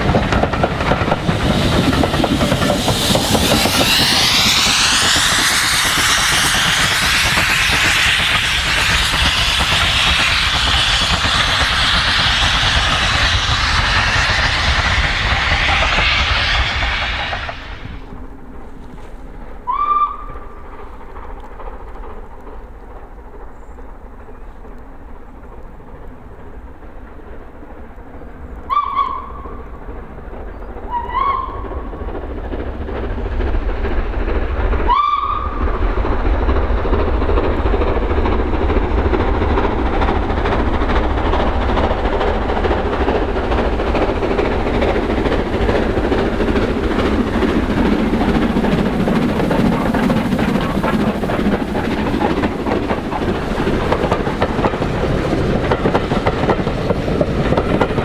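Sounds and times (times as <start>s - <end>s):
steam engine working past: 0.0s - 58.0s
steam locomotive whistle blasts: 19.7s - 20.4s, 28.7s - 29.5s, 30.9s - 31.6s, 34.9s - 35.6s.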